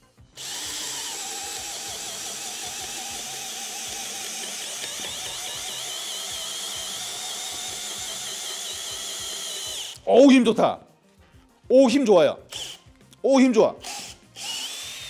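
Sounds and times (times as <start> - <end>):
hammer drill boring into wood: 0.4 - 10.0, 12.5 - 12.8, 13.8 - 15.0.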